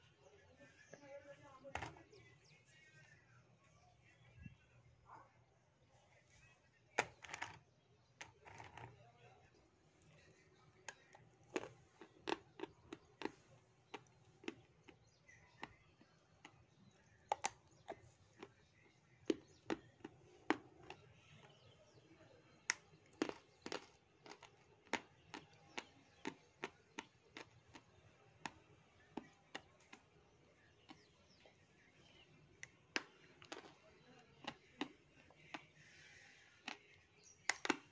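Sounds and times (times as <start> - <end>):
crisp crunching of chewed clay: 10.2 - 21.8, 22.5 - 37.9.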